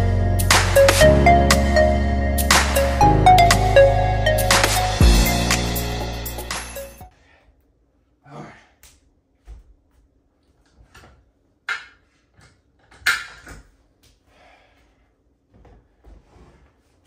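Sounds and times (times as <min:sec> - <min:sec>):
music: 0:00.0 - 0:07.1.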